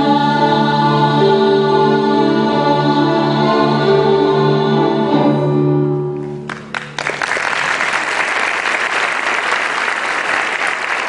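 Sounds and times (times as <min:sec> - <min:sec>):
choir and strings holding chord: 0:00.0 - 0:06.1
audience applause: 0:06.5 - 0:11.0.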